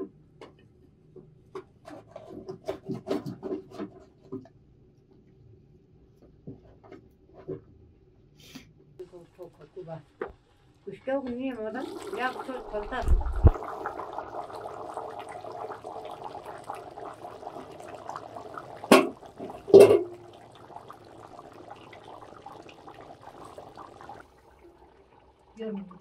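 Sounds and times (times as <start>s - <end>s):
water pouring: 11.6s - 26.0s.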